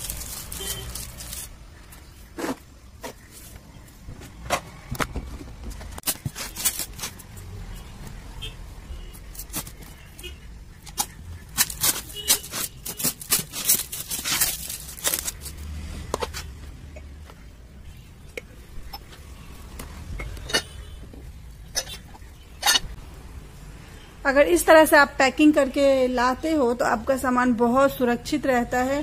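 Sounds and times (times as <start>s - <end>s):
rustles and clicks: 0.0s - 7.4s, 10.9s - 16.6s
tape ripping off: 11.0s - 15.6s.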